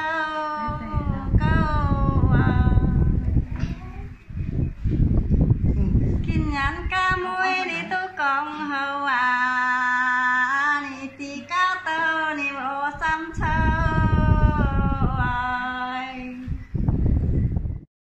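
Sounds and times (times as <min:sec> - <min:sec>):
woman singing unaccompanied: 0:00.0 - 0:03.4, 0:06.2 - 0:16.6
low rumble: 0:00.6 - 0:07.2, 0:12.9 - 0:15.6.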